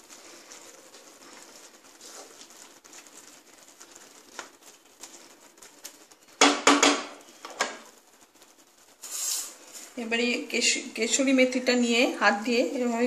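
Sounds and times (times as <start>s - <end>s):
wooden spatula stirring in pan: 0.0s - 13.0s
spatula knocking pan rim: 6.4s - 7.2s.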